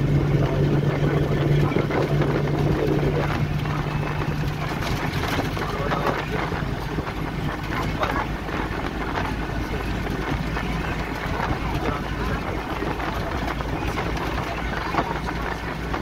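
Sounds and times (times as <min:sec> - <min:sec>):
vehicle engine and road noise: 0:00.0 - 0:16.0.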